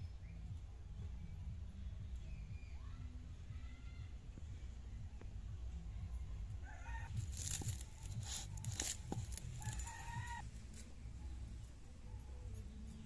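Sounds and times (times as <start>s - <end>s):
stalks snapping and tearing: 7.2s - 10.0s
chicken clucking: 9.6s - 10.4s
chicken drawn-out call: 9.6s - 10.4s.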